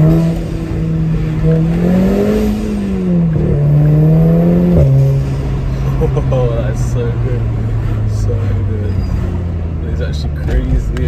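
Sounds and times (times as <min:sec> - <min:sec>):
car engine revving: 0:00.0 - 0:11.0.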